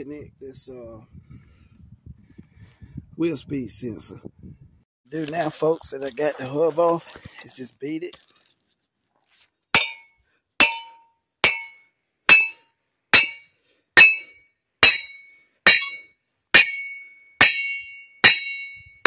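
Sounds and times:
sledgehammer striking metal hub: 9.8 - 18.8.

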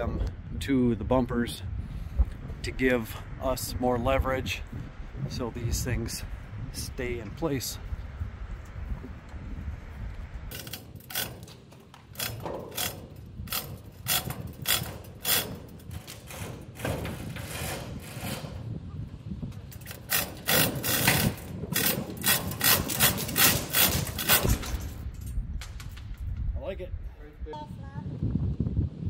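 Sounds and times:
wind rumbling on microphone: 0.0 - 29.0
bin jack mechanical strokes: 19.8 - 24.9.

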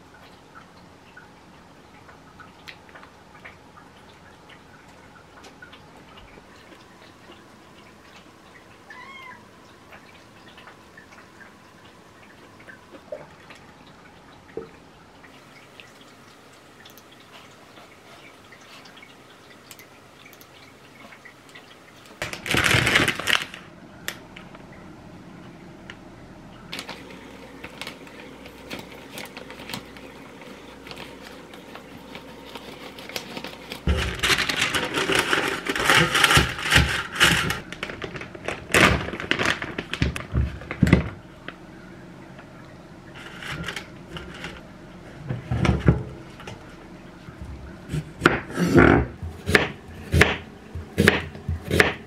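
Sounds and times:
plastic packet rustling: 22.2 - 24.2, 26.7 - 41.2
scissors cutting plastic packet: 27.6 - 40.2.

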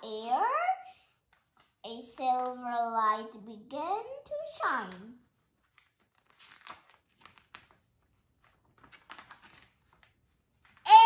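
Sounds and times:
book pages rustling: 4.8 - 10.9.

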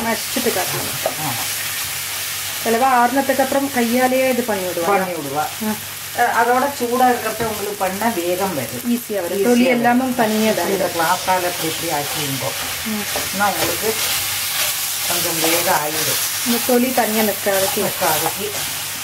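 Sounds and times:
oil sizzling: 0.0 - 19.0
masher scraping in a pan: 10.3 - 18.9.

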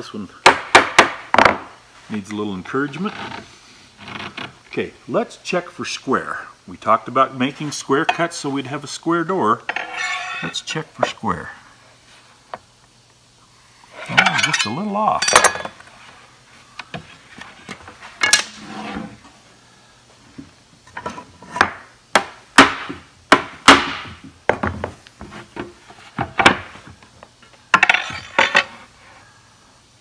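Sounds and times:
steel square clattering: 9.8 - 10.6.

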